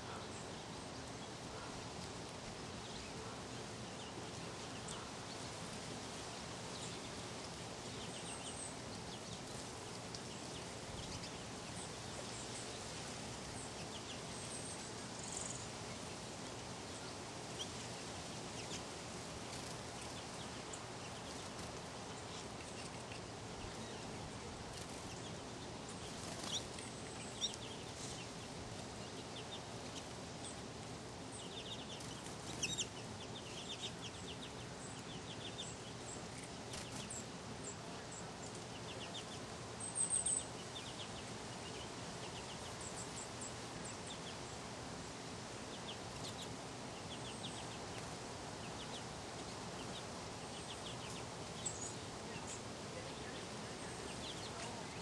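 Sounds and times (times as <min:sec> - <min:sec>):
low background noise: 0:00.0 - 0:55.0
finches chirping: 0:06.3 - 0:16.0, 0:16.9 - 0:44.7, 0:45.5 - 0:55.0.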